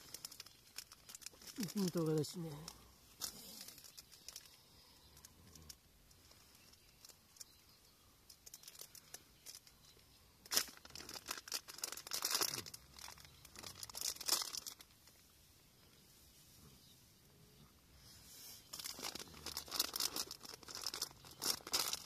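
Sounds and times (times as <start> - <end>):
plastic packets crinkling and tearing: 0.0 - 7.6, 8.3 - 9.8, 10.4 - 15.0, 18.7 - 22.0.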